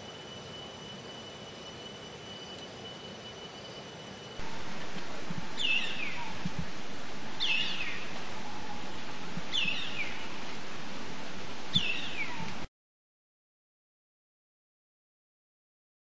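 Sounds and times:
steady background noise: 0:00.0 - 0:12.7.

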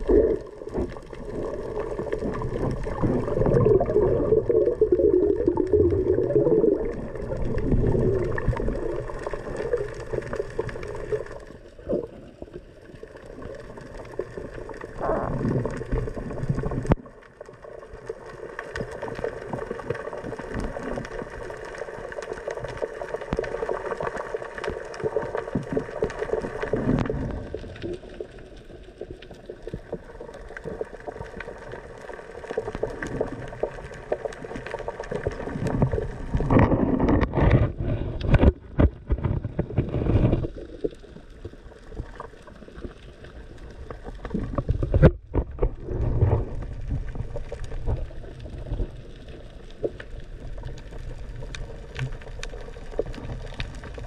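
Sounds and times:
muffled underwater noise: 0:00.0 - 0:54.0
water rushing against camera: 0:00.0 - 0:54.0.

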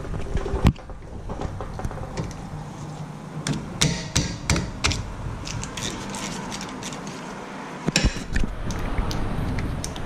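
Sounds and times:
sharp metal taps: 0:03.5 - 0:05.1.

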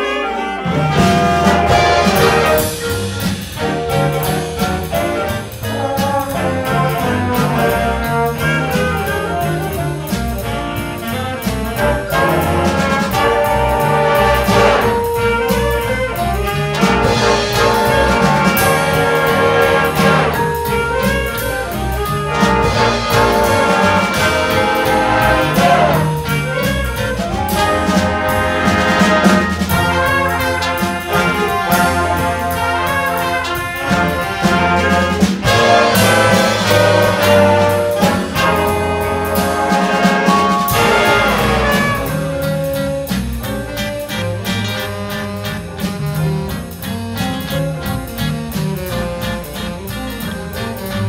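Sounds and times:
jazz big band playing swing: 0:00.0 - 0:51.0
saxophones and horns: 0:00.0 - 0:51.0.

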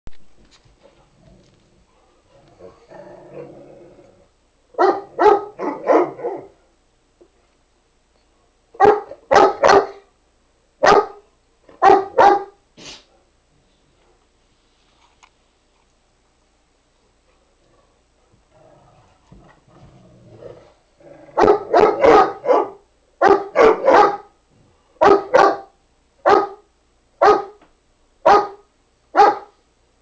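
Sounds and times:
dog growling softly: 0:00.8 - 0:04.3, 0:17.6 - 0:21.4
dog barking: 0:04.8 - 0:06.6, 0:08.8 - 0:10.1, 0:10.8 - 0:13.2, 0:21.4 - 0:24.4, 0:25.0 - 0:27.6, 0:28.2 - 0:29.6.

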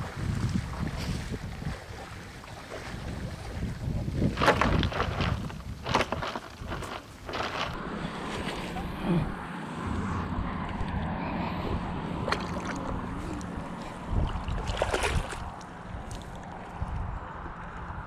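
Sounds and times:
water lapping against boat: 0:00.0 - 0:09.4, 0:11.6 - 0:16.5
wind buffeting microphone: 0:00.0 - 0:18.0.

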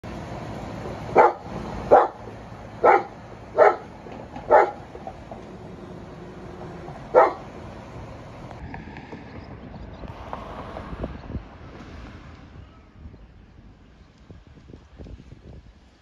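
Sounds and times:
dog barking: 0:01.1 - 0:02.2, 0:02.8 - 0:04.9, 0:07.1 - 0:07.5.

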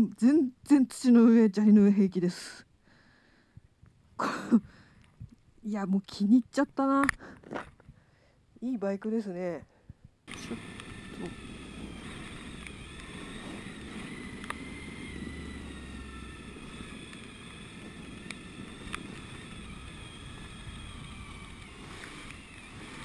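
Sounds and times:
motorcycle engine running: 0:10.3 - 0:23.0
sharp ticks: 0:10.3 - 0:23.0
tyres on gravel: 0:10.3 - 0:23.0.

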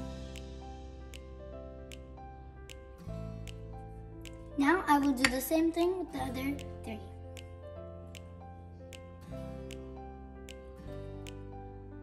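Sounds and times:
background music held notes: 0:00.0 - 0:12.0
light ticking: 0:02.7 - 0:11.4.

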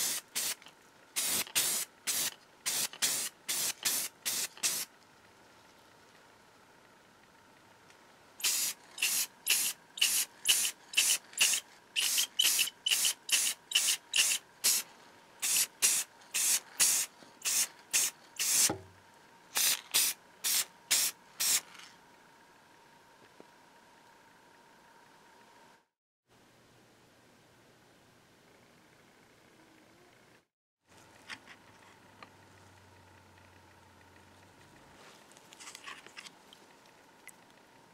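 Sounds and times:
spray paint hissing bursts: 0:00.0 - 0:00.6, 0:01.2 - 0:04.9, 0:08.4 - 0:18.8, 0:19.5 - 0:21.7.

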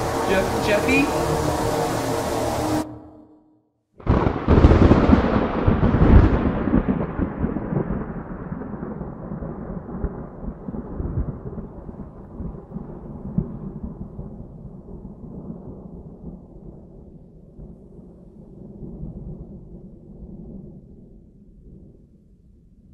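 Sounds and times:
thunder rumbling and cracking: 0:04.0 - 0:22.2.

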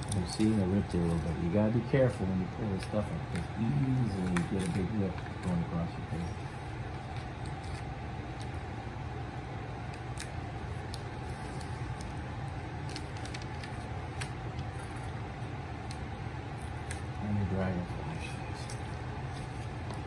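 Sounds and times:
background hum: 0:00.0 - 0:20.0
paper peeling clicks: 0:04.2 - 0:05.6, 0:12.8 - 0:14.9.

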